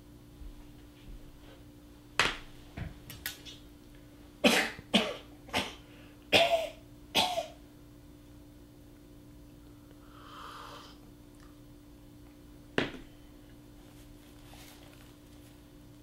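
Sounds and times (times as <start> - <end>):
man coughing: 4.4 - 7.6.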